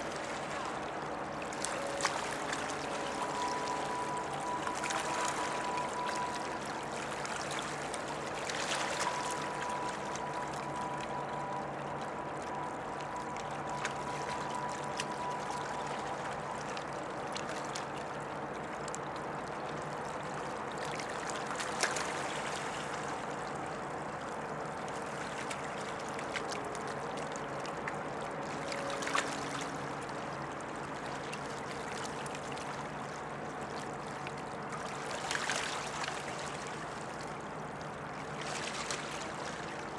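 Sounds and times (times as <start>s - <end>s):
held tones from ship: 0.0s - 18.0s
ship engine low hum: 0.0s - 39.9s
water lapping and trickling: 0.0s - 39.9s.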